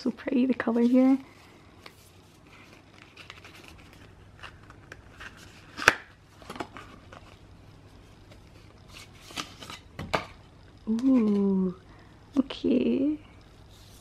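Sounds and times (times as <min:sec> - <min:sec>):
paper rustling and sliding: 0:13.7 - 0:14.0.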